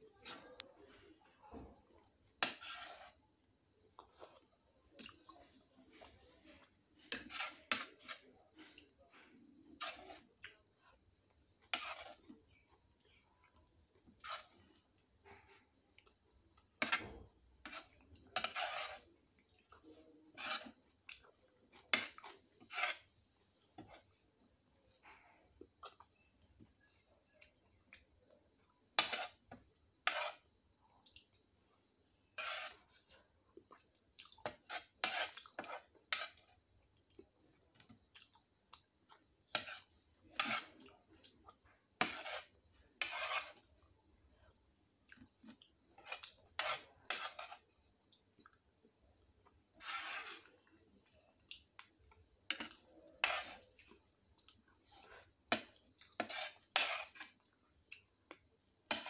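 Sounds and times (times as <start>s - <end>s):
metal spoon scraping plates: 2.4s - 3.1s, 7.0s - 8.3s, 9.8s - 10.2s, 11.6s - 12.2s, 16.8s - 19.0s, 20.3s - 20.8s, 30.0s - 30.4s, 32.4s - 32.8s, 39.5s - 40.7s, 42.0s - 43.6s, 46.0s - 47.6s, 49.8s - 50.5s, 52.5s - 53.7s, 55.5s - 57.3s.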